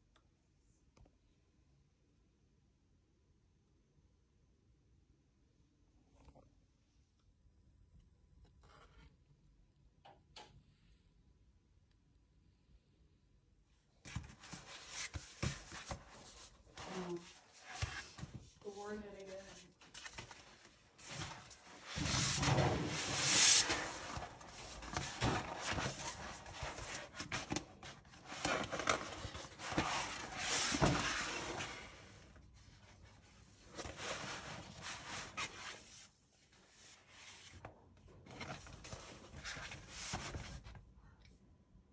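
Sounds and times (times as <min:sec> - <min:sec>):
paper map rustling: 0:14.0 - 0:40.8.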